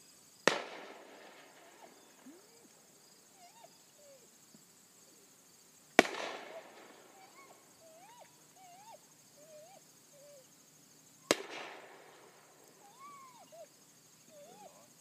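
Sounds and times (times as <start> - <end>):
distant gunshot: 0.5 - 2.2, 6.0 - 7.1, 11.3 - 12.3.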